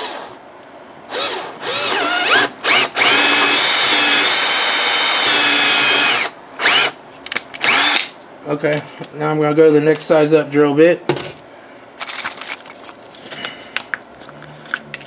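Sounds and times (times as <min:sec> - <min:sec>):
power drill boring into metal: 0:01.1 - 0:07.0.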